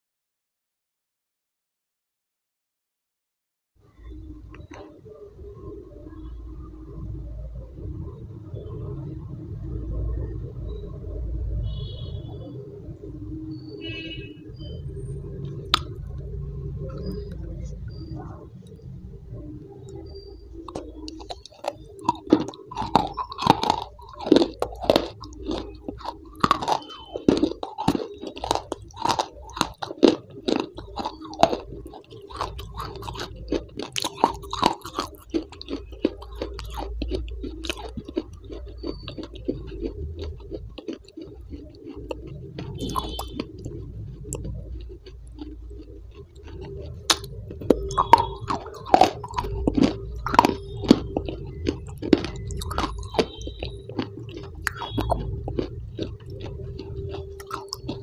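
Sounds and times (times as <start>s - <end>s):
crunchy chewing: 11.6s - 58.0s.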